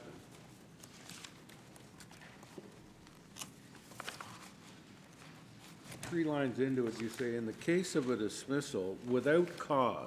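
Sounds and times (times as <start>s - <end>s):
papers rustling and clicking: 0.3s - 6.2s, 6.8s - 8.1s.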